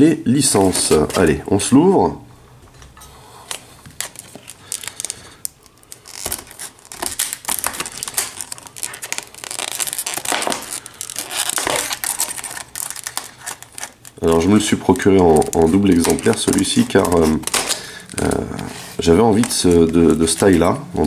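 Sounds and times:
scissors cutting plastic packaging: 4.0s - 20.8s.

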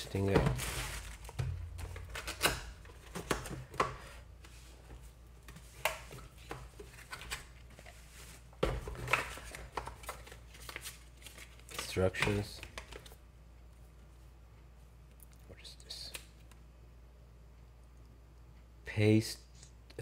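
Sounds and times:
box contents handled: 0.1s - 3.9s.

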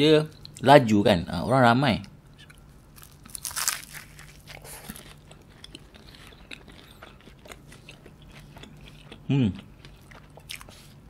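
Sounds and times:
chewing with pastry crackles: 2.4s - 11.0s
biting into crunchy pastry: 2.5s - 10.9s.

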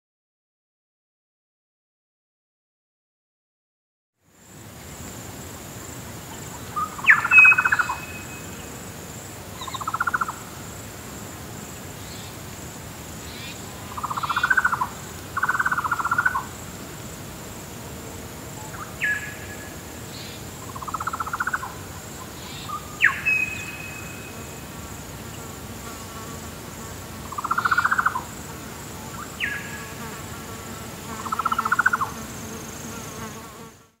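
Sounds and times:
high insect drone: 4.2s - 34.0s
buzzy rattling bird calls: 20.2s - 21.8s.

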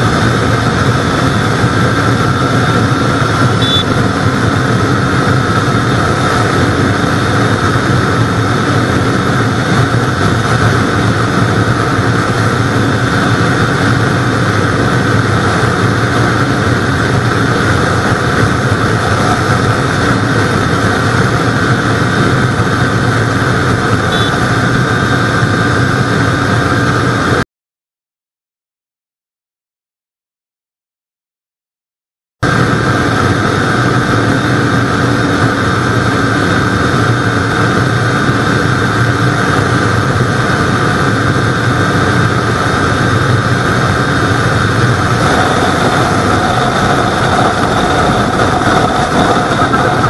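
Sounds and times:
motorcycle engine at full throttle: 0.0s - 27.4s, 32.4s - 50.0s
wind rush: 0.0s - 27.4s, 32.4s - 50.0s.

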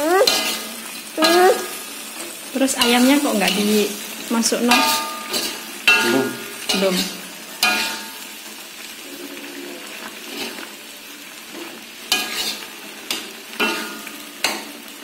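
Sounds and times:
spice paste sizzling in a wok: 0.0s - 15.0s
metal spatula scraping a wok: 0.2s - 10.7s, 11.5s - 14.7s
spatula striking wok clinks: 4.7s - 8.3s, 13.1s - 14.7s.

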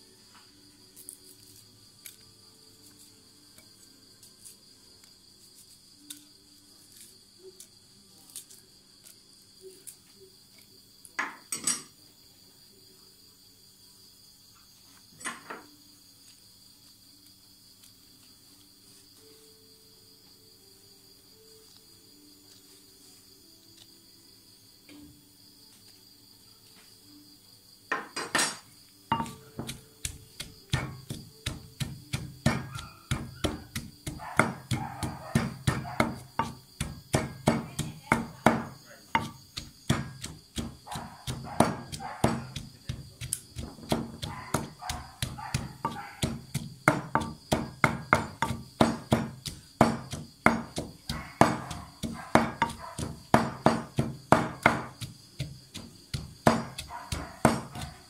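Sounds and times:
pestle pounding in mortar: 29.1s - 58.0s.

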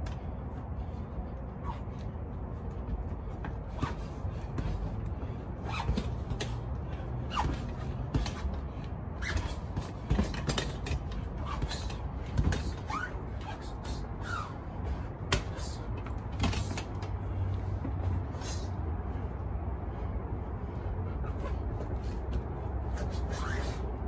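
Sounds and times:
low outdoor rumble: 0.0s - 24.0s
sneakers squeaking on concrete: 1.6s - 2.1s, 5.6s - 6.6s, 7.3s - 8.5s, 9.2s - 10.8s, 11.4s - 14.7s, 21.2s - 23.8s.

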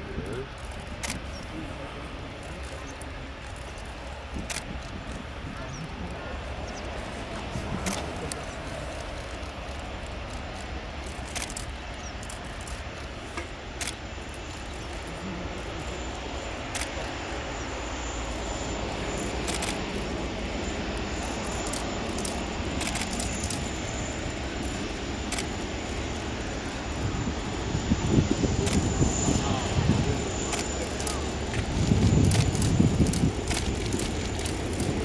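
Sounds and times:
jet engines rumbling: 0.0s - 35.0s
sharp clicks: 24.6s - 25.6s.

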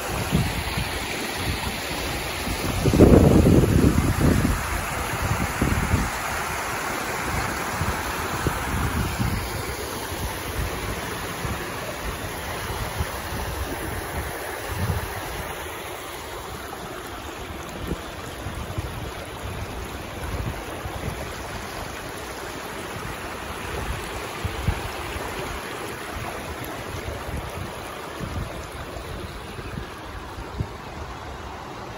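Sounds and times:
wind buffeting microphone: 0.0s - 6.6s, 7.2s - 15.6s, 23.0s - 31.4s
water rushing: 0.0s - 31.9s.

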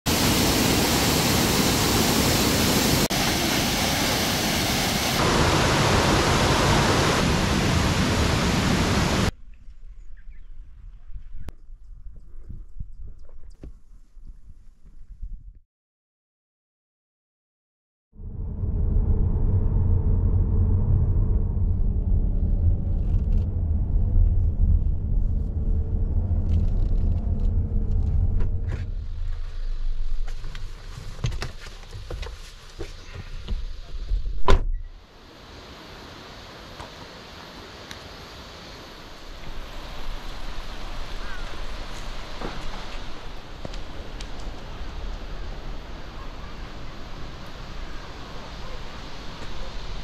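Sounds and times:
stream rushing over boulders: 0.1s - 9.3s, 35.1s - 50.0s
car road and engine rumble: 18.3s - 32.2s.

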